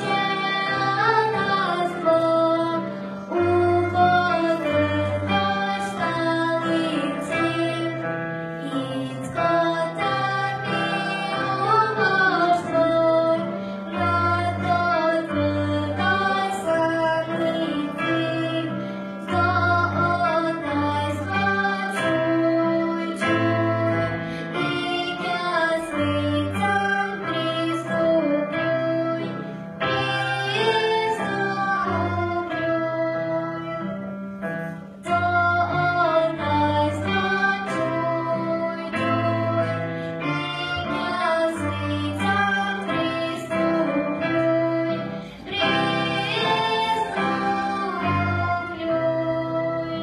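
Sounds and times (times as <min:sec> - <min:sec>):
backing accompaniment with bass: 0:29.9 - 0:50.0.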